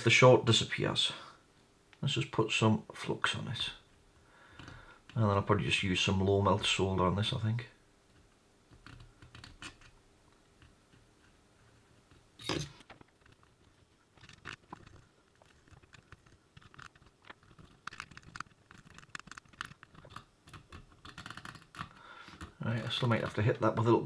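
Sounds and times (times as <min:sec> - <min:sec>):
faint crackles and ticks: 0:08.1 - 0:23.9.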